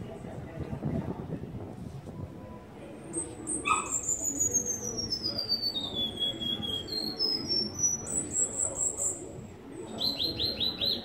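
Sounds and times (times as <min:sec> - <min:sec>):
bird singing: 0:03.2 - 0:09.3, 0:09.9 - 0:11.0.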